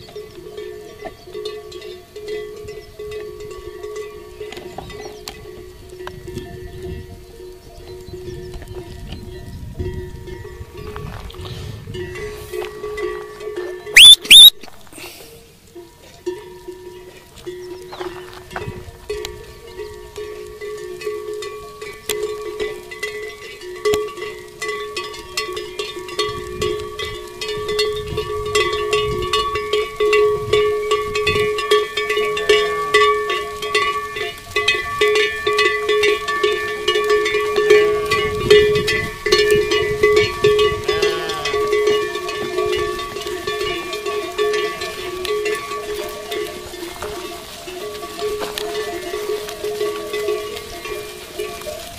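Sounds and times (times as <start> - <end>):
livestock bells clanking: 0.0 - 51.9
goats and sheep bleating: 10.4 - 27.5, 28.1 - 51.9.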